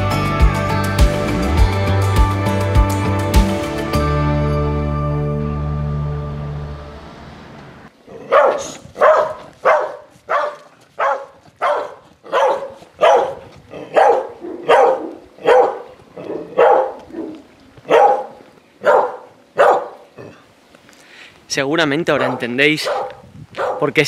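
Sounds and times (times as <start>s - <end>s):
dog barking aggressively: 8.1s - 20.3s, 22.1s - 24.0s.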